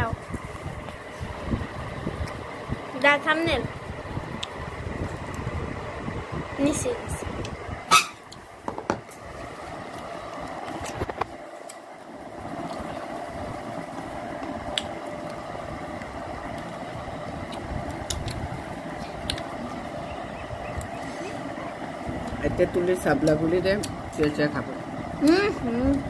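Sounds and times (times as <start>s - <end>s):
steady background hum: 0.0s - 26.0s.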